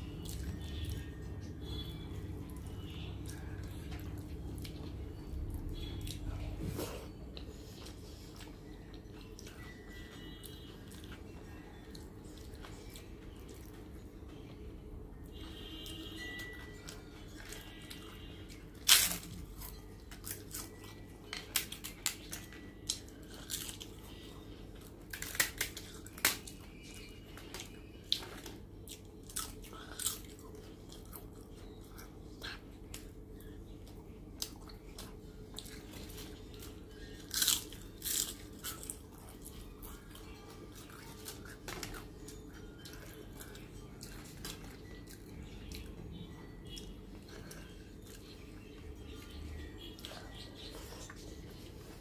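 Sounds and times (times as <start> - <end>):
crisp papadum cracking and crunching: 15.7 - 31.4, 34.4 - 45.9.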